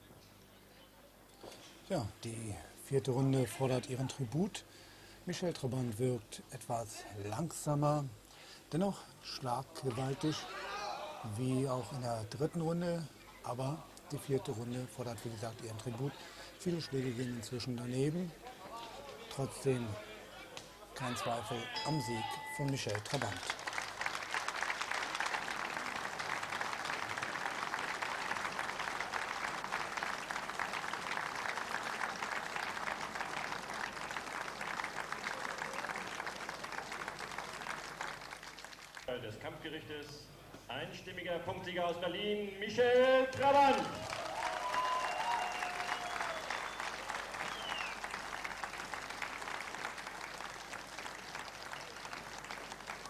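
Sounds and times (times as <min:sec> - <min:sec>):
crowd applauding: 0:21.0 - 0:39.2, 0:43.3 - 0:53.0.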